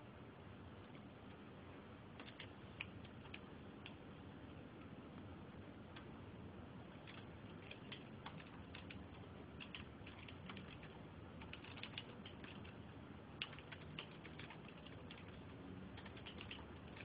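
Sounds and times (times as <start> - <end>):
low steady hum: 0.0 - 17.0
computer keyboard typing: 2.2 - 4.0, 6.9 - 17.0.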